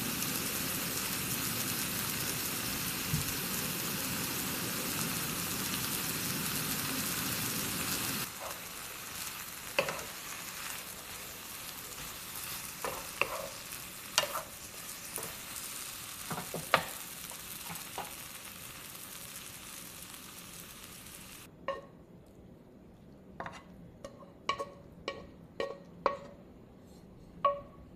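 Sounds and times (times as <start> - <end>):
vegetables sizzling in frying pan: 0.0 - 21.5
spatula knocking pan: 23.4 - 26.4, 27.4 - 27.7.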